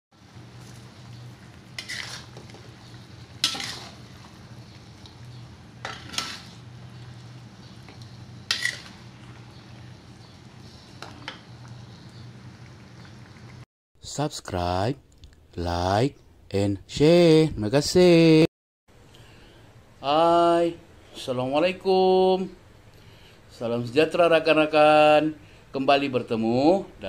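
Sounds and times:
metal ladle scraping wok: 0:01.6 - 0:09.8.

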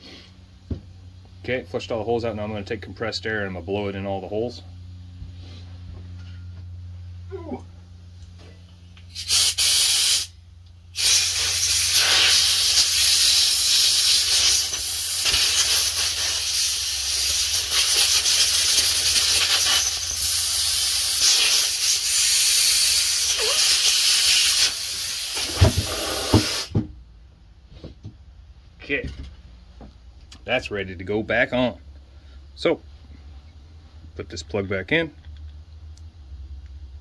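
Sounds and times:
compressed air hissing: 0:09.1 - 0:26.8.

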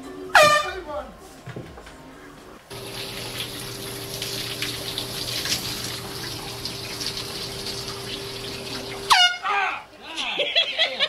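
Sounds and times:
shower water spraying: 0:02.7 - 0:09.3.

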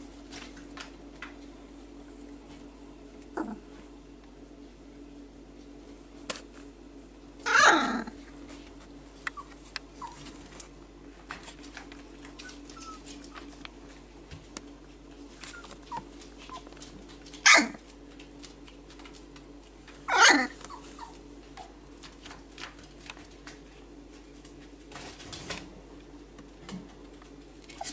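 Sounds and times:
puppy barking: 0:07.5 - 0:08.1, 0:17.4 - 0:17.8, 0:20.1 - 0:21.2
puppies rustling on fleece: 0:08.2 - 0:26.2.

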